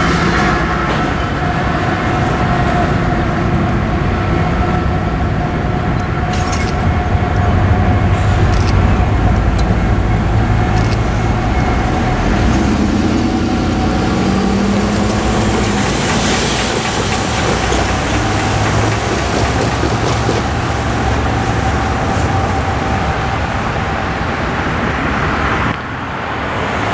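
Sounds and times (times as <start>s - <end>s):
low traffic rumble: 0.0s - 26.9s
car driving over railroad crossing: 7.9s - 22.1s.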